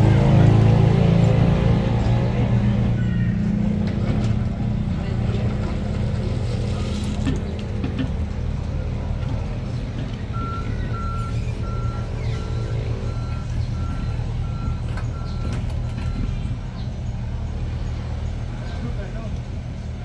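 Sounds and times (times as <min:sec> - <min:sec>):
diesel engine running: 0:00.0 - 0:20.0
travel alarm beeping: 0:10.3 - 0:16.3.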